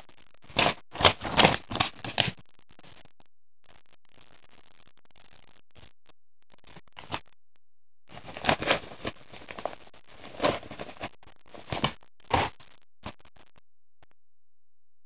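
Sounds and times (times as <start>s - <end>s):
paper mailer bag rustling: 8.1s - 12.5s.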